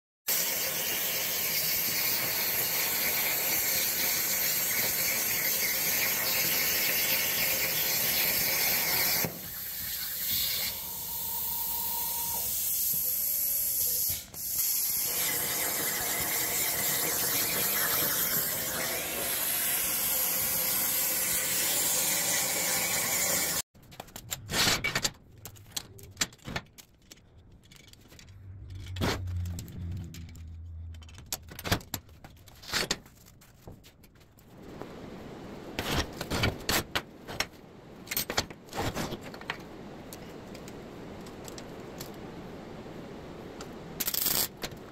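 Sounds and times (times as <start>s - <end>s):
plasma torch hissing: 0.3s - 23.6s.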